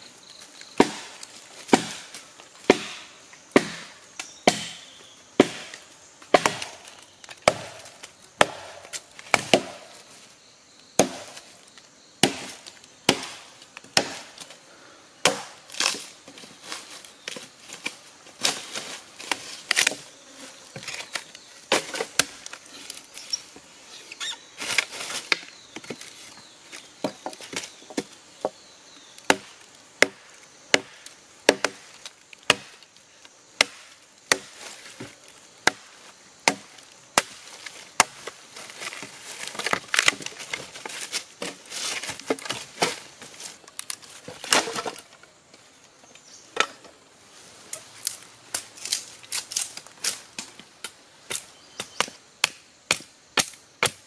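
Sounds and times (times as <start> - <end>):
machete chopping into wood: 0.8 - 10.0, 11.0 - 11.5, 12.2 - 14.4, 15.2 - 16.1, 29.3 - 31.9, 32.5 - 32.8, 33.6 - 37.4, 38.0 - 38.4, 44.3 - 45.0, 51.3 - 54.0.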